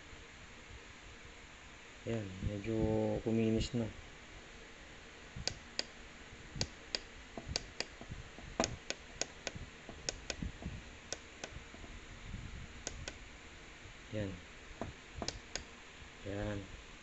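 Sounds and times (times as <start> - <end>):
small push buttons clicking: 6.6 - 8.0, 8.6 - 10.4, 11.1 - 11.6, 12.8 - 13.2, 15.2 - 15.7.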